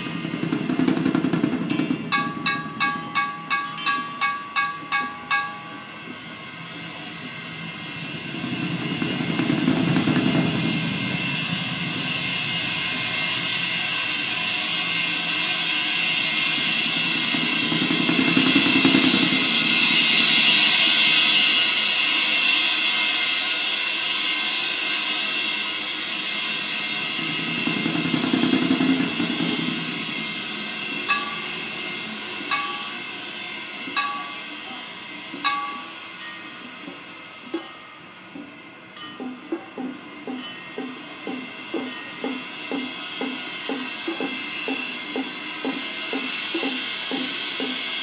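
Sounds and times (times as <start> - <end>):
sharp cymbal strikes: 0.0 - 48.0
shimmering cymbal wash: 0.0 - 48.0.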